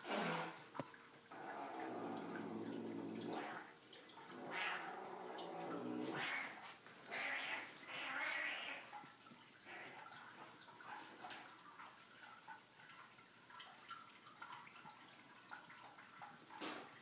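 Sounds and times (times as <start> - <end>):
cat growling: 1.3 - 3.7, 4.3 - 8.9.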